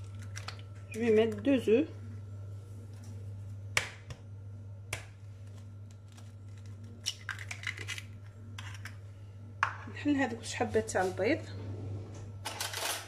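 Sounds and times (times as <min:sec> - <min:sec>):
steady low hum: 0:00.0 - 0:13.0
eggshell crackling: 0:04.9 - 0:09.0.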